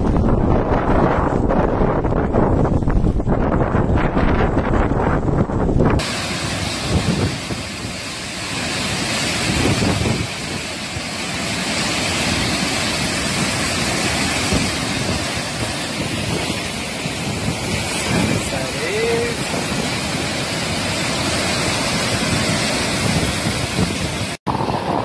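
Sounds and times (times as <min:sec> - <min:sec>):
wind buffeting microphone: 0:00.0 - 0:25.0
steady loud hiss: 0:06.0 - 0:24.4.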